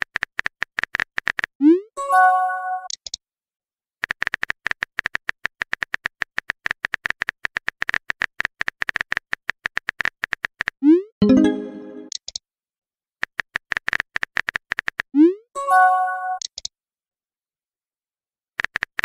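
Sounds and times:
message chime: 11.2s - 12.1s, 15.6s - 16.4s.

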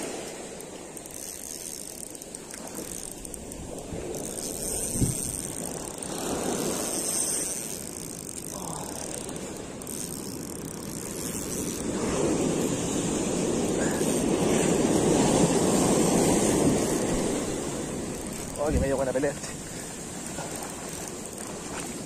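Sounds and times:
ocean surf on a beach: 0.0s - 22.0s.

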